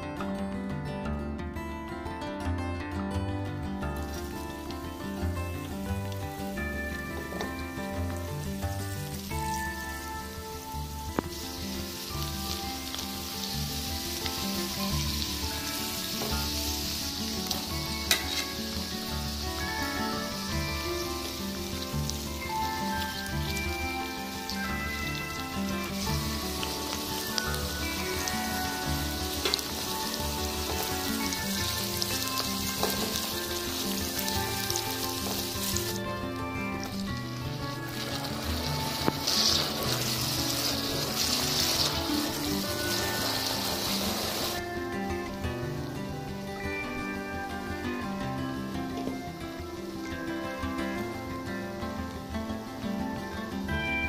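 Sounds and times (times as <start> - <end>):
soft background music: 0.0 - 54.0
chillies sizzling in oil: 3.8 - 54.0
spatula scraping wok: 11.3 - 36.0, 36.6 - 44.6.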